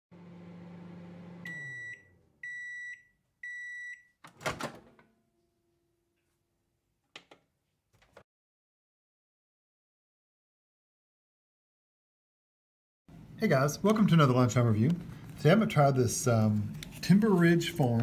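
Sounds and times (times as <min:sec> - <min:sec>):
microwave oven humming: 0:00.1 - 0:02.7
microwave beeps: 0:01.3 - 0:04.2.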